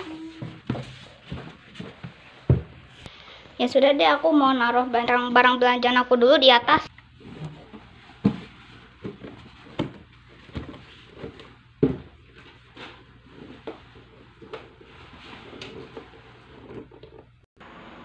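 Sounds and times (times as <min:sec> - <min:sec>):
footsteps on wooden stairs: 0:00.0 - 0:03.1.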